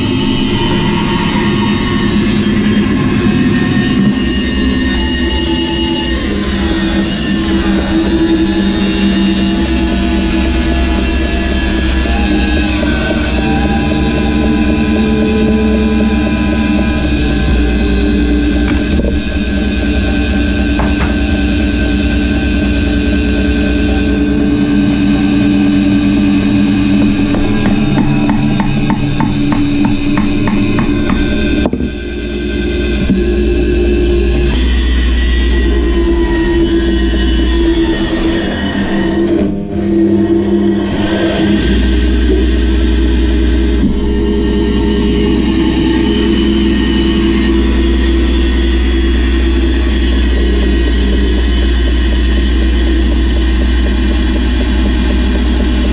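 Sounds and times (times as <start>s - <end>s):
bandsaw running: 0.0s - 39.3s
sharp knock: 20.8s - 21.4s.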